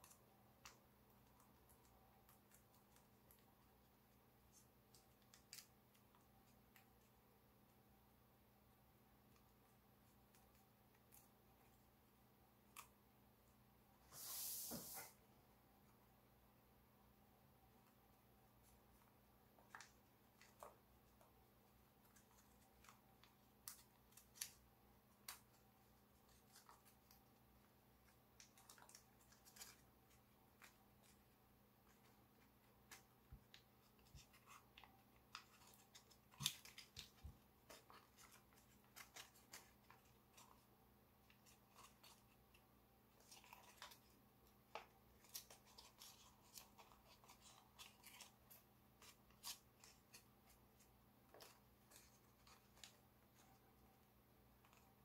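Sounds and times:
foil paper crinkling and clicking: 22.0s - 25.6s, 28.0s - 53.5s.

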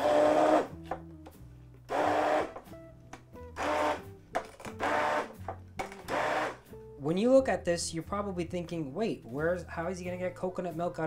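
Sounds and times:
immersion blender pulses: 0.0s - 0.7s, 1.9s - 2.6s, 3.6s - 4.0s, 4.8s - 5.3s, 6.1s - 6.6s.

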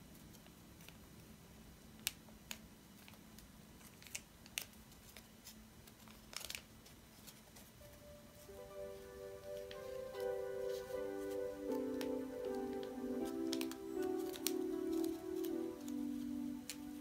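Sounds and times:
faint low hum: 0.0s - 17.0s
paper clicks and rustles: 2.0s - 8.0s, 9.5s - 17.0s
soft musical tones: 7.6s - 17.0s.

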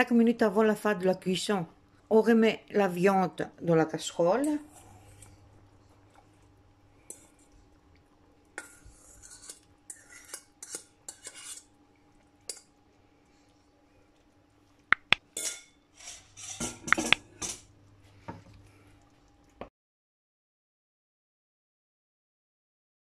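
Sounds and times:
steel bowl clinking and scraping: 7.0s - 7.5s, 8.6s - 11.7s, 15.3s - 17.7s.

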